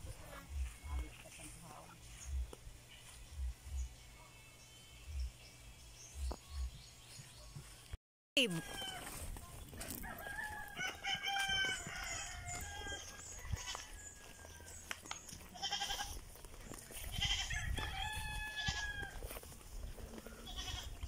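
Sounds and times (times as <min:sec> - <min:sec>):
farm animals calling: 0:09.8 - 0:21.0.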